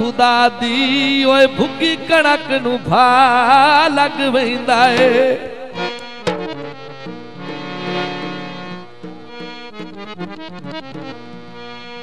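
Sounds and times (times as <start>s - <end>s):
harmonium melody: 0.0s - 12.0s
sharp knock: 6.2s - 6.8s.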